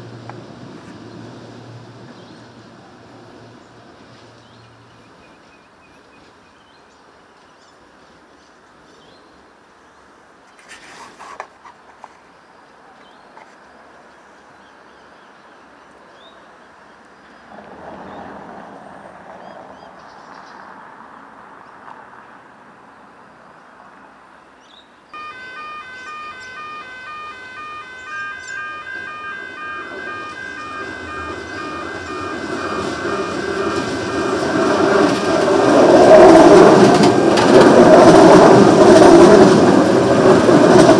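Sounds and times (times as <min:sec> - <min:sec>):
approaching electric train rumble: 0:00.0 - 0:05.5, 0:25.2 - 0:40.9
electric train running faintly: 0:25.2 - 0:40.9
railway crossing alarm tones: 0:25.2 - 0:40.9.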